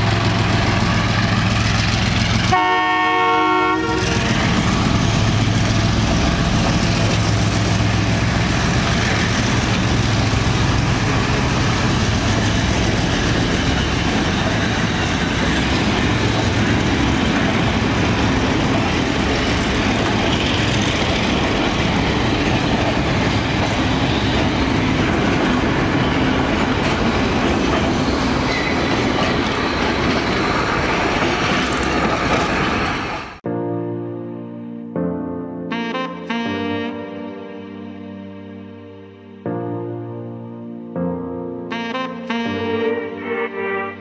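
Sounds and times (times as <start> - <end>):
train wheels clattering over rail joints: 0.0 - 2.6, 3.9 - 33.4
diesel locomotive engine hum: 0.0 - 33.4.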